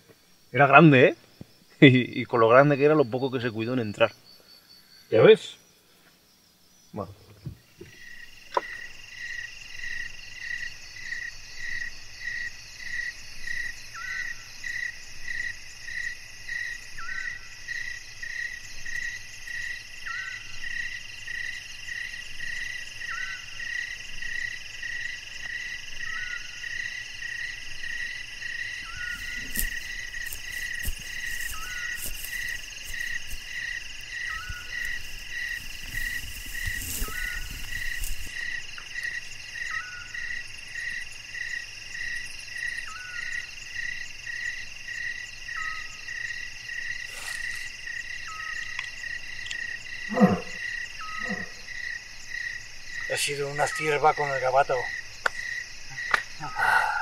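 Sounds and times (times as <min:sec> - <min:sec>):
high insect trilling: 0:07.9 - 0:57.0
pulsing frog call: 0:28.8 - 0:38.6, 0:50.0 - 0:51.7
faint rustles and clicks: 0:29.0 - 0:38.7.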